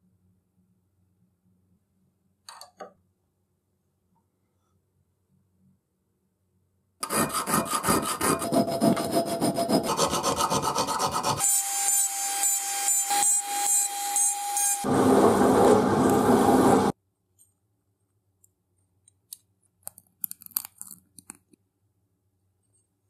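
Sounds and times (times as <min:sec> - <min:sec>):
rasping strokes on steel: 0:07.0 - 0:14.9.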